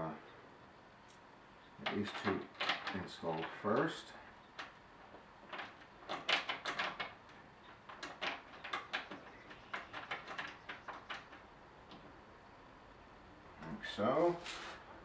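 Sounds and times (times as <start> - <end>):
bolts clicking and scraping: 1.1 - 12.2.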